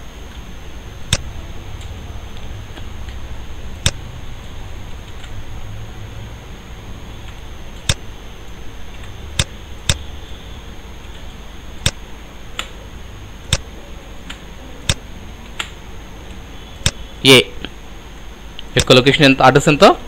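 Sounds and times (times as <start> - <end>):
faint high electrical whine: 0.0 - 20.0
low room hum: 0.0 - 20.0
computer mouse clicks: 5.0 - 5.4, 7.2 - 8.0, 11.0 - 12.8, 13.5 - 17.0.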